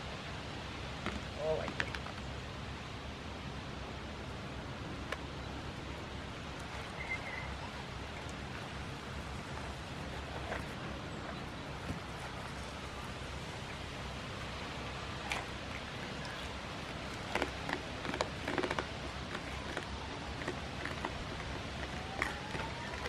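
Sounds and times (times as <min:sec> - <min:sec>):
steady outdoor hiss: 0:00.0 - 0:23.0
goats crunching treats: 0:08.0 - 0:23.0.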